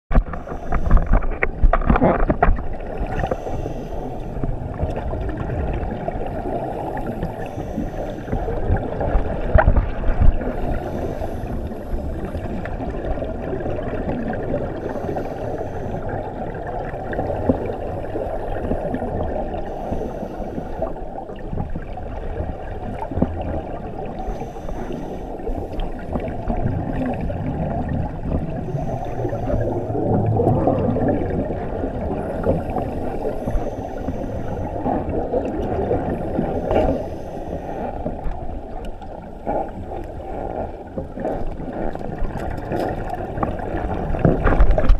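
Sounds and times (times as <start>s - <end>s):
muffled underwater rush: 0.1s - 44.9s
regulator exhaust bubbles gurgling: 25.4s - 37.0s.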